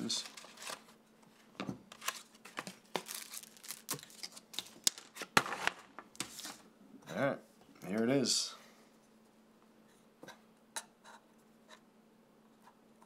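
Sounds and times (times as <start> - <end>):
cardboard rustling: 1.9 - 6.6.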